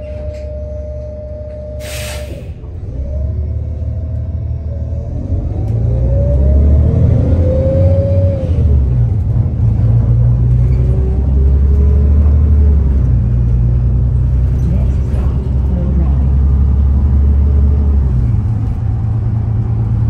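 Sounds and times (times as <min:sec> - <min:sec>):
transmission whine: 0:00.0 - 0:03.8
bus engine rumble: 0:00.0 - 0:20.0.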